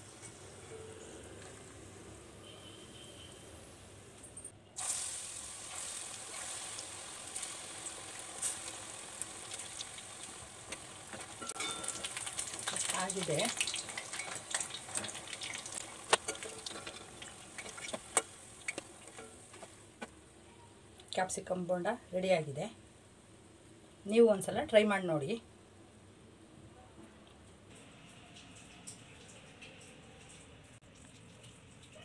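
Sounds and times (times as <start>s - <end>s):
food sizzling in hot oil: 4.8s - 20.0s
metal spoon scraping pan: 16.1s - 19.7s.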